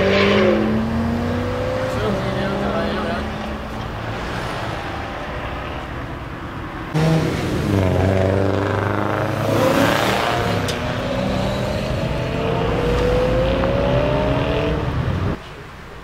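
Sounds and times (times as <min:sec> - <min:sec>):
car engine accelerating: 0:00.0 - 0:06.2, 0:06.9 - 0:15.4.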